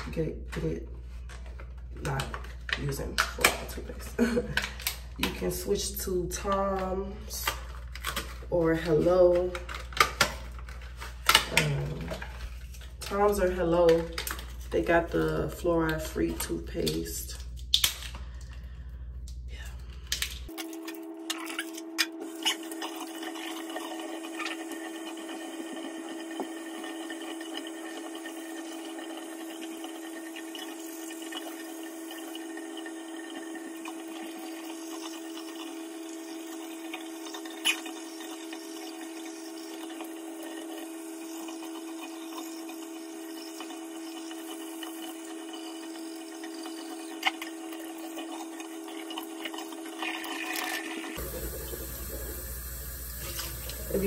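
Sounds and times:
electric toothbrush buzzing: 0:20.5 - 0:54.0.

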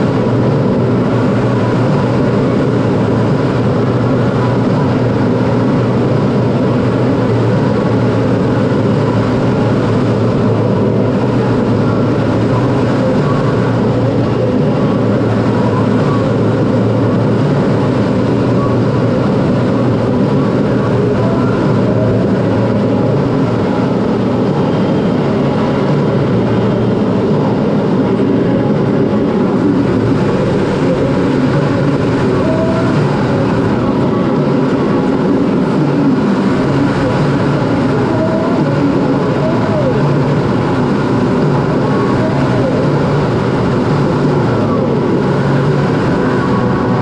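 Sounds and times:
airflow over canopy: 0:00.0 - 0:47.0
jet engine: 0:00.0 - 0:47.0.

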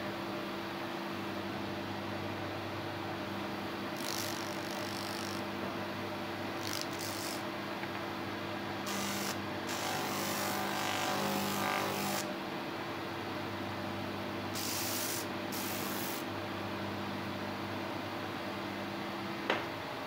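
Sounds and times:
spindle sander humming: 0:06.6 - 0:07.4, 0:08.9 - 0:12.3
sandpaper hissing on wood: 0:06.7 - 0:07.4, 0:14.6 - 0:16.3.

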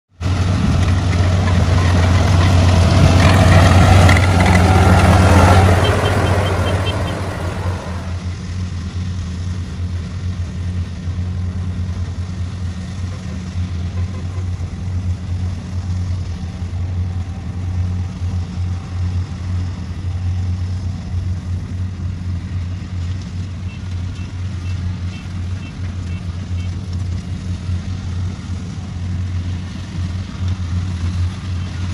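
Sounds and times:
combine harvester diesel engine drone: 0:00.1 - 0:31.9.

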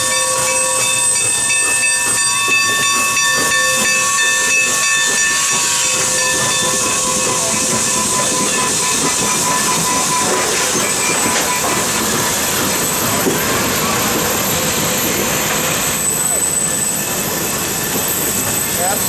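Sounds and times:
steady ringing tone: 0:00.0 - 0:13.2
steam locomotive hissing steam: 0:00.0 - 0:19.0.

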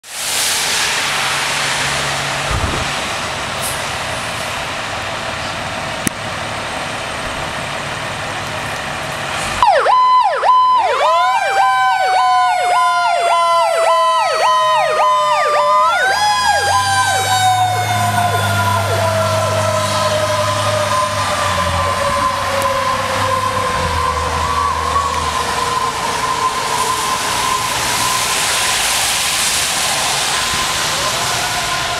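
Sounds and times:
rain on wet pavement: 0:00.0 - 0:31.9
fire siren wailing: 0:07.5 - 0:31.9.

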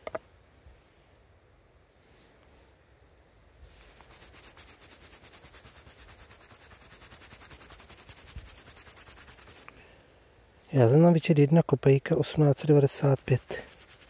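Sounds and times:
wire brush scrubbing a coin: 0:03.8 - 0:09.7, 0:12.6 - 0:14.0.

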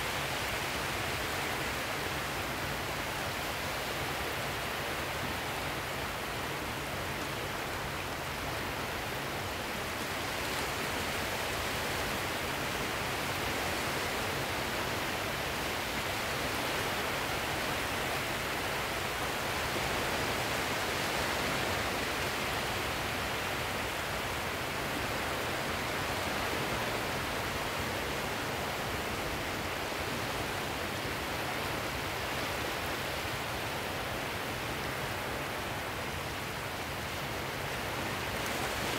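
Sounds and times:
sea surf rushing: 0:07.7 - 0:38.9.

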